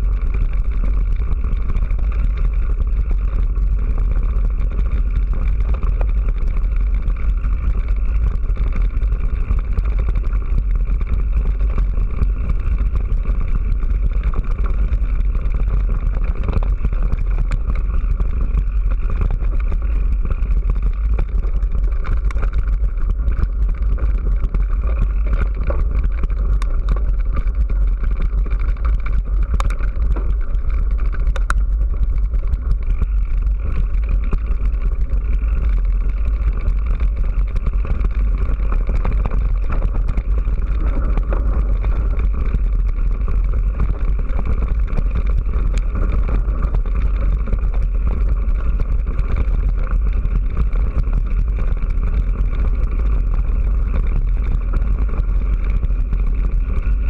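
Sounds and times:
bike tyres on gravel: 0.0s - 57.0s
sharp rattling clicks: 17.7s - 38.1s.

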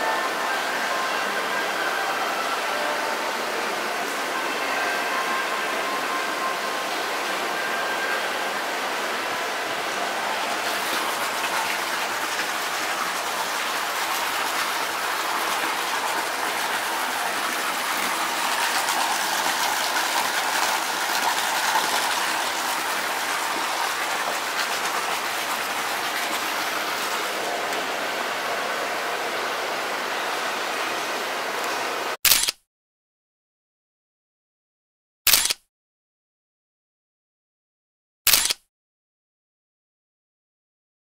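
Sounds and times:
water pouring into bath: 10.2s - 28.1s.

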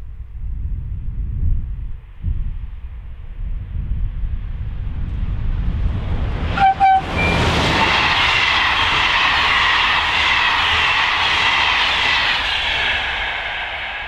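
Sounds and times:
train coaches rolling past: 5.7s - 14.0s.

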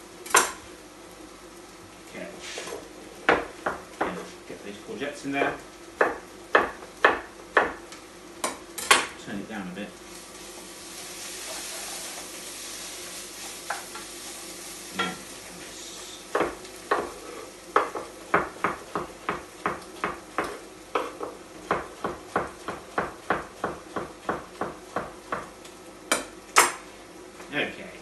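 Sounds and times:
vegetables sizzling in a pot: 0.0s - 28.0s
knife chopping on wooden board: 6.0s - 7.8s, 16.3s - 17.2s, 17.8s - 25.5s.

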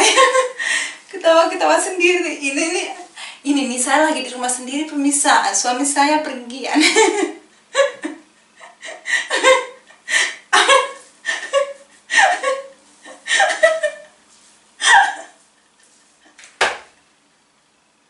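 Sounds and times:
woman laughing hard: 0.0s - 0.8s, 6.8s - 14.2s, 14.8s - 16.4s.

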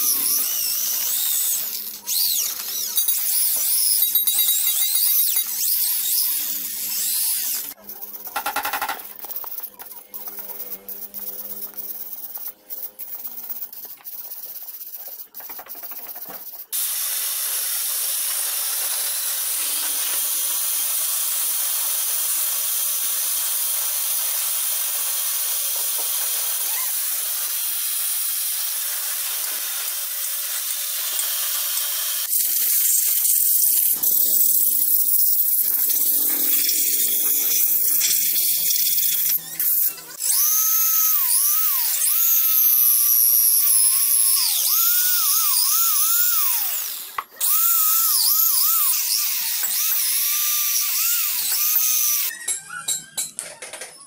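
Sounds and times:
electric drill whining: 0.0s - 7.8s, 33.1s - 52.3s.

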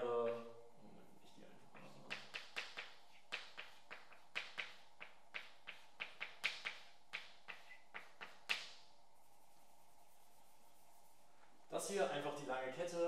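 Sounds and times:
chalk tapping on blackboard: 1.6s - 11.2s.

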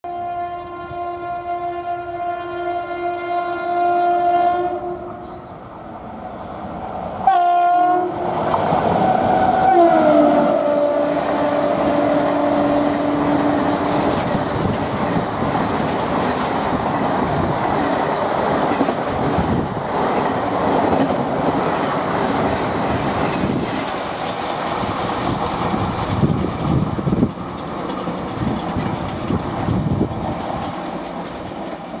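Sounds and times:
locomotive horn blasts: 0.0s - 5.4s, 7.2s - 8.2s, 9.3s - 14.0s
train wheels clattering over rail joints: 11.4s - 32.0s.

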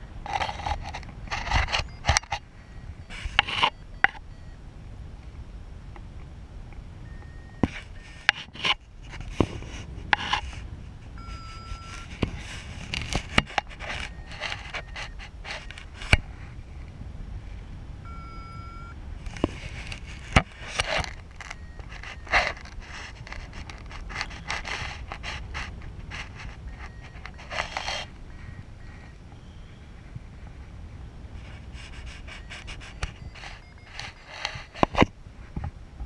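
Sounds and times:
rustling clicks and scrapes: 0.0s - 4.2s, 7.1s - 16.6s, 19.2s - 29.1s, 31.4s - 35.7s
short electronic beeps: 0.0s - 4.6s, 7.0s - 8.6s, 11.2s - 12.2s, 13.4s - 16.0s, 18.0s - 19.0s, 20.5s - 25.5s, 26.2s - 29.8s, 32.1s - 35.0s
wind rushing over microphone: 4.6s - 18.2s.

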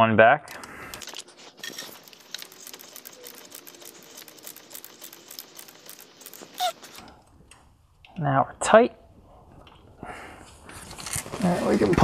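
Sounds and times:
hand ratchet clicking: 0.5s - 7.0s.

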